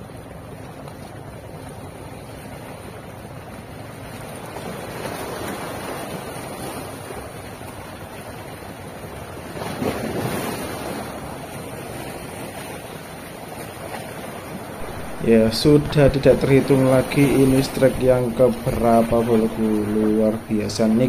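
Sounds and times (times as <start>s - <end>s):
waves breaking over rocks: 0.1s - 21.0s
wind buffeting microphone: 14.5s - 21.0s.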